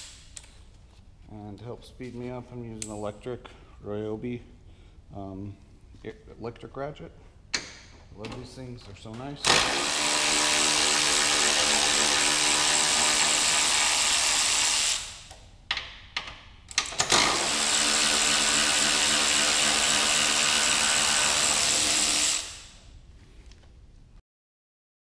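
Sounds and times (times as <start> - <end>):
electric ratchet running: 9.5 - 15.3, 17.0 - 22.8.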